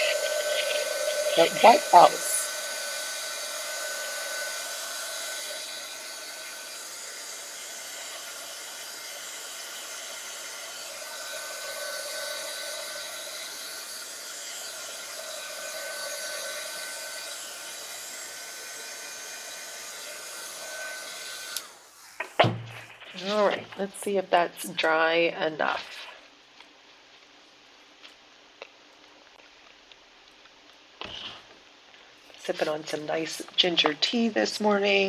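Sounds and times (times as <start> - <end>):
handheld dryer blowing: 0.0 - 22.5, 32.4 - 35.0.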